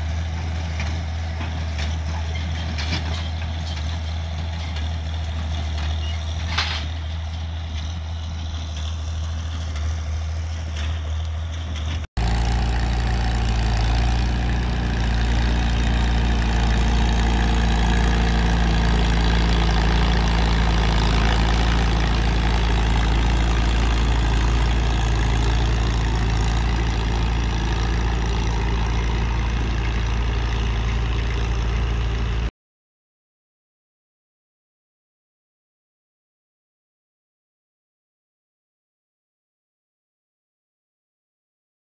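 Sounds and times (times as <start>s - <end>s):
hay baler running: 0.0s - 32.5s
tractor engine running: 0.0s - 32.5s.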